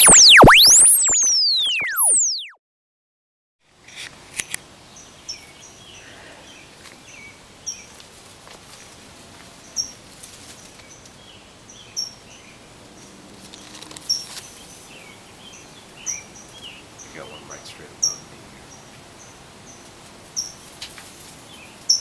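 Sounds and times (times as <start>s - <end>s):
birds chirping: 14.1s - 19.8s.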